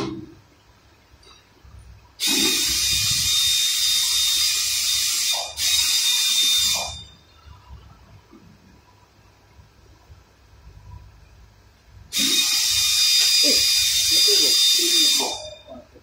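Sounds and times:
pneumatic tool air hissing: 2.2s - 7.0s, 12.1s - 15.4s.

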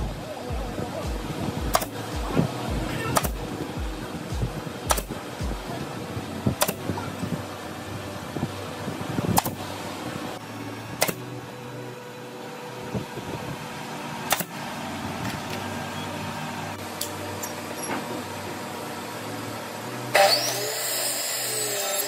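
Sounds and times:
steady mechanical hum: 0.0s - 22.0s
nail gun firing: 1.7s - 1.9s, 4.9s - 5.2s, 6.6s - 6.8s, 9.4s - 9.6s, 11.0s - 11.2s, 14.3s - 14.5s.

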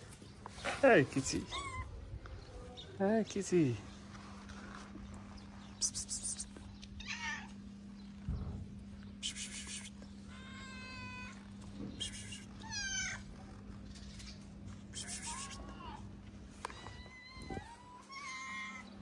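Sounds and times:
cat meowing: 1.4s - 2.0s, 7.0s - 7.6s, 10.3s - 11.4s, 12.3s - 13.3s, 16.6s - 19.0s.

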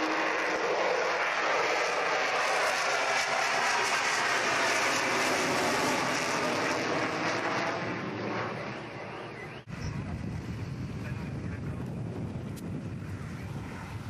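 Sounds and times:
jet aircraft passing overhead: 0.0s - 14.0s.

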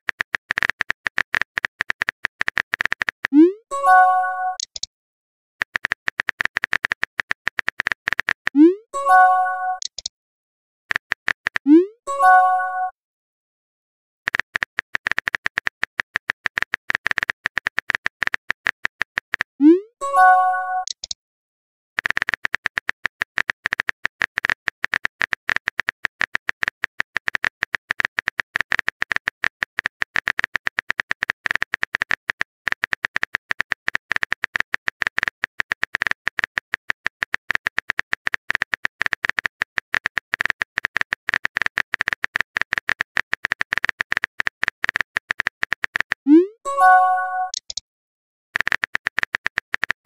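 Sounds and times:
keyboard typing clicks: 0.1s - 4.9s, 5.6s - 10.1s, 10.9s - 12.9s, 14.3s - 21.2s, 22.0s - 47.8s, 48.6s - 50.0s
rising message sent tone: 46.3s - 47.6s.

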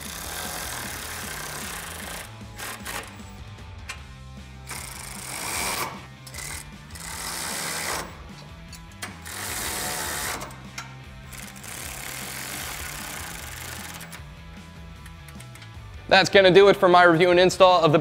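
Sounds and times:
background music with steady beat: 0.0s - 18.0s
socket ratchet clicking: 4.7s - 14.2s, 15.0s - 15.8s.

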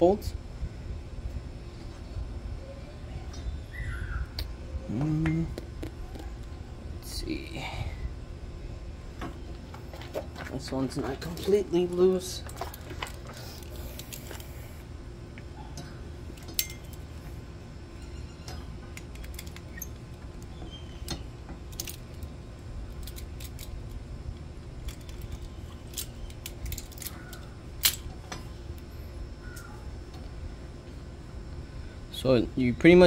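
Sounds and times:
steady low rumble: 0.0s - 33.0s
small metallic clicks and clinks: 15.8s - 17.0s, 24.8s - 28.4s.

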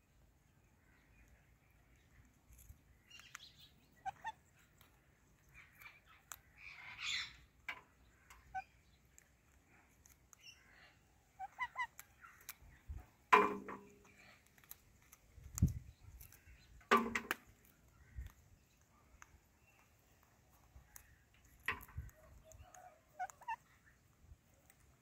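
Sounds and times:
small clicks: 2.0s - 6.5s, 14.2s - 23.6s
parrots chirping: 3.0s - 9.4s, 10.0s - 12.8s, 22.7s - 24.0s.

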